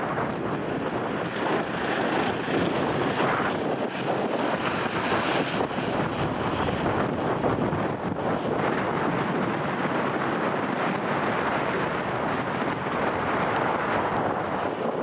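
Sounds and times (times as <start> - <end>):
vehicle engine and tyres passing: 0.0 - 15.0
wind buffeting microphone: 0.0 - 15.0.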